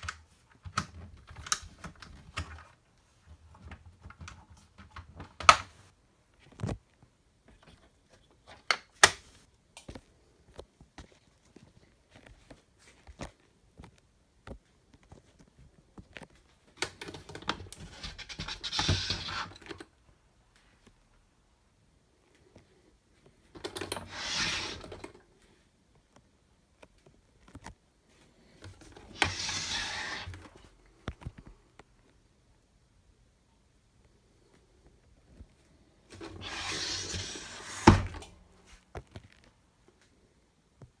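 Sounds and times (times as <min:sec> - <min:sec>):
rustling sliding noise: 0:17.8 - 0:19.8, 0:23.8 - 0:25.6, 0:28.1 - 0:30.8, 0:35.7 - 0:38.9.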